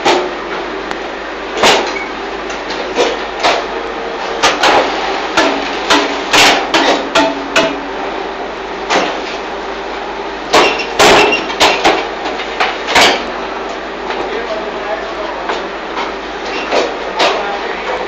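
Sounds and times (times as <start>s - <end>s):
machine clanking and knocking: 4.3s - 8.0s, 10.5s - 13.4s.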